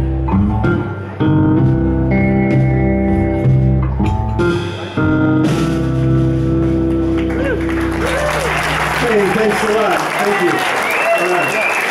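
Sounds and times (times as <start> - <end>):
electric guitar blues chords: 0.0 - 9.0
bass and drums: 0.0 - 9.6.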